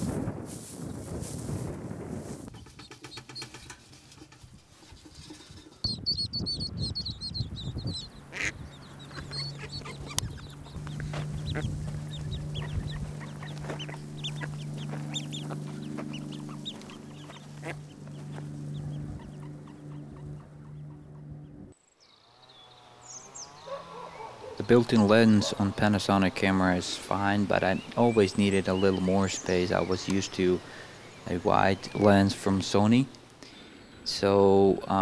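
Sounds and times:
steady low hum: 0.0 - 21.8
ducklings peeping: 5.9 - 21.7, 22.4 - 35.0.

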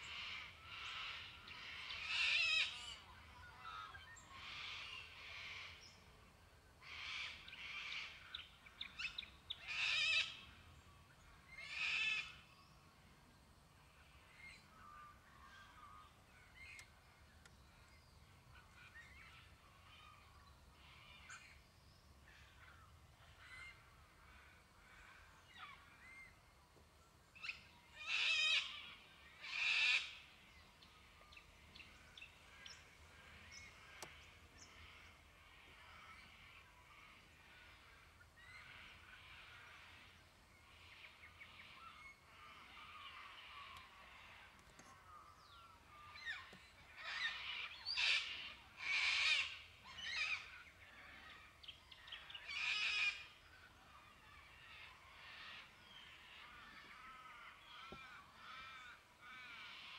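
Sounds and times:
birds giving harsh rasping calls: 28.0 - 30.3, 46.1 - 50.5.

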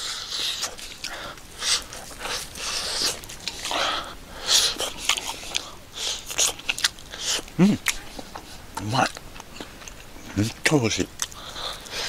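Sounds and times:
chewing and lip-smacking: 0.0 - 12.0.

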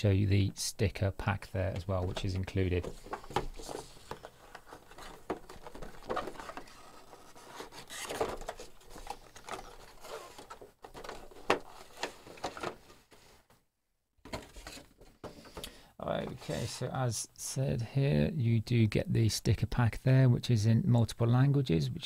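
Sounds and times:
cardboard box rustling and scraping: 2.9 - 12.8.

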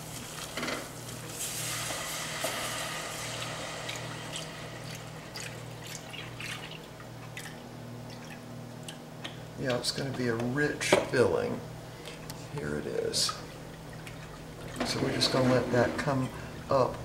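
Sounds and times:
liquid sizzling in a pan: 0.0 - 7.0.

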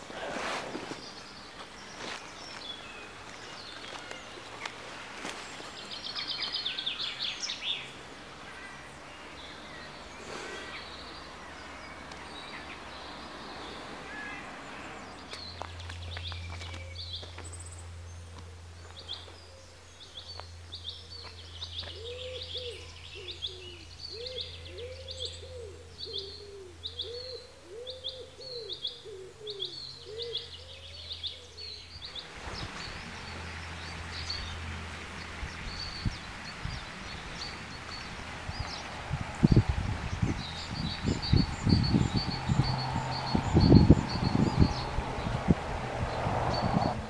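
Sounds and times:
bird low cooing calls: 21.0 - 31.9
wind hiss on microphone: 32.1 - 47.0
low bumps: 32.2 - 47.0.

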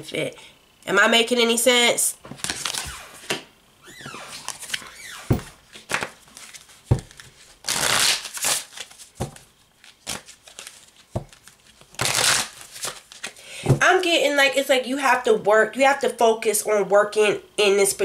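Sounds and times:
cards being shuffled: 2.3 - 3.4, 4.3 - 13.4
cards tapping and clicking: 6.9 - 7.4, 8.8 - 12.0.

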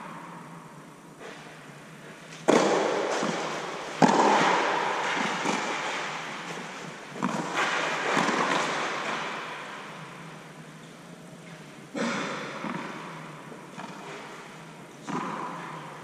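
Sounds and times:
tennis ball struck by rackets: 2.4 - 9.4, 15.0 - 15.7
tennis ball bouncing on clay: 2.5 - 6.0.

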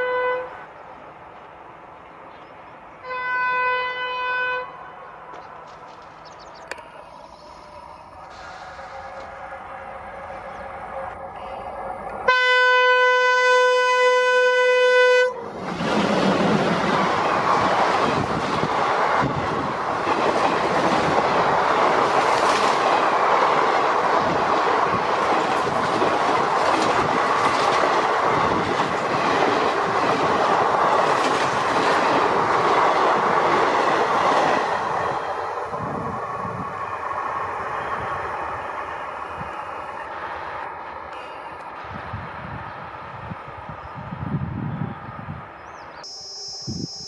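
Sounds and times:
locomotive horn: 0.0 - 0.6, 3.0 - 5.1, 8.3 - 15.5
train coaches rumbling past: 0.0 - 47.0.

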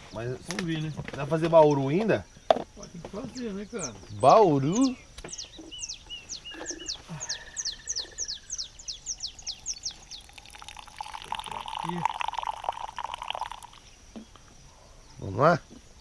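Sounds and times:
coffee pouring into glass cup: 9.2 - 13.8.

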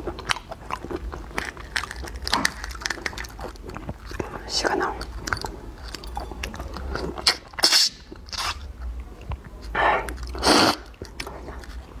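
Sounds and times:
shells cracking and crackling: 0.2 - 8.6.

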